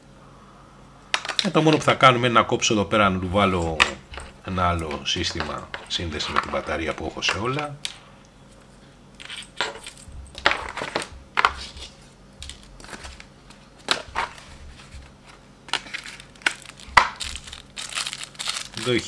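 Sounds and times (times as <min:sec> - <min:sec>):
plastic packaging handled: 0:09.2 - 0:19.0.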